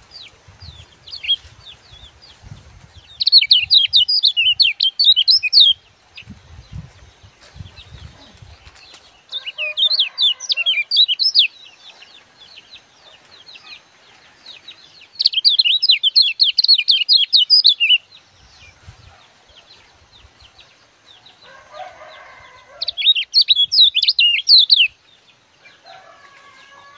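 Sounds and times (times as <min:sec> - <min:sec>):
bird high rapid chirping: 0:00.0 - 0:11.6, 0:14.7 - 0:20.6, 0:22.8 - 0:25.0.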